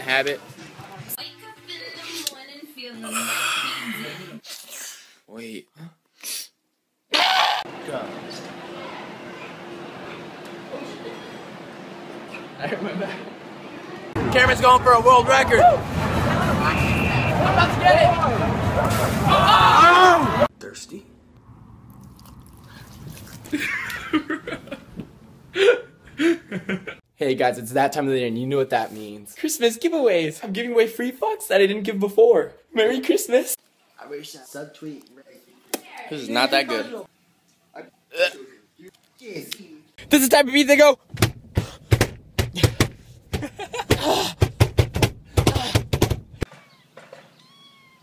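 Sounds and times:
sharp vocal cries: 46.5 - 48.0.

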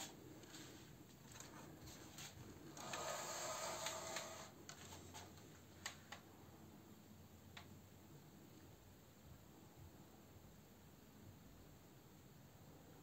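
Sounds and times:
rustling scrape: 0.0 - 5.4.

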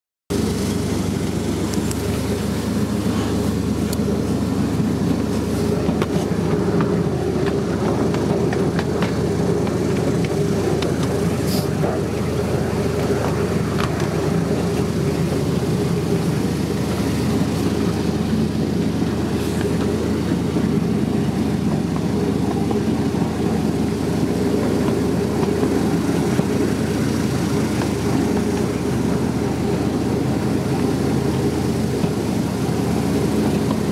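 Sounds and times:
miniature train rumbling on track: 0.3 - 33.9
light clicks of wheels: 1.6 - 2.3, 3.1 - 15.0.

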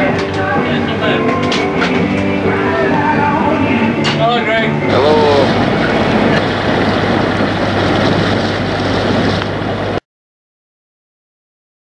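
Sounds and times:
boat engine hum: 0.0 - 10.0
wind: 0.0 - 10.0
rushing water: 4.8 - 10.0.

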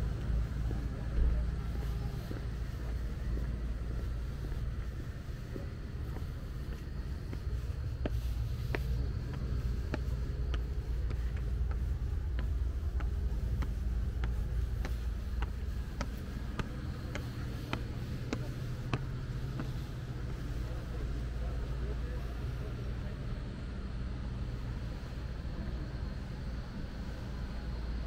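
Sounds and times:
footsteps on stone stairs: 0.0 - 21.2.

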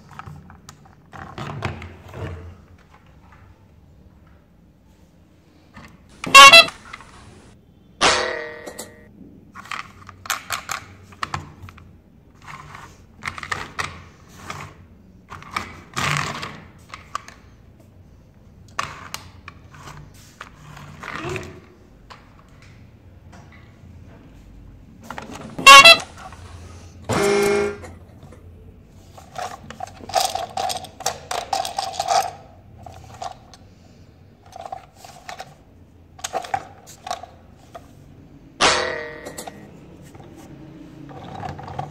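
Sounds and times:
toy horn toots: 6.2 - 7.4, 25.6 - 26.3, 27.1 - 27.9
plastic toy trains clicking: 29.1 - 33.6.

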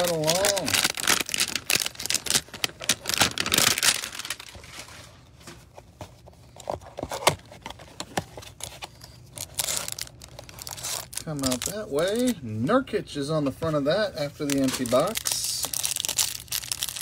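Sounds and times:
cardboard and paper rustling: 0.0 - 12.4, 13.4 - 17.0.

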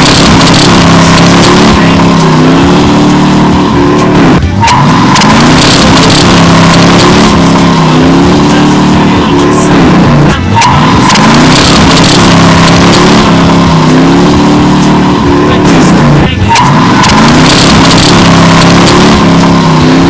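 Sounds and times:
car engine revving high: 0.0 - 20.0
tyre squeal: 3.8 - 7.0, 10.5 - 12.9, 15.8 - 18.9.

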